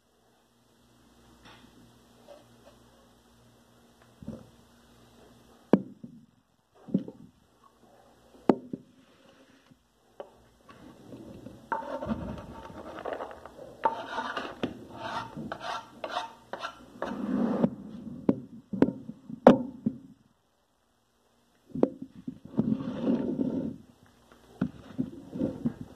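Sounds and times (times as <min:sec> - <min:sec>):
knife scraping on cutting board: 0:11.7 - 0:17.2.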